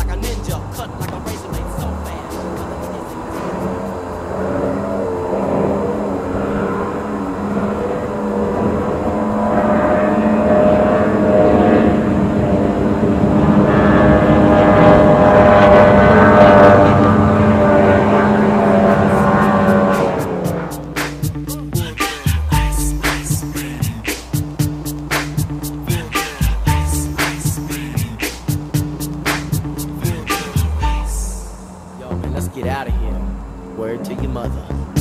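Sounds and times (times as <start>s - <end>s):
outboard engine at high speed: 0.0s - 35.0s.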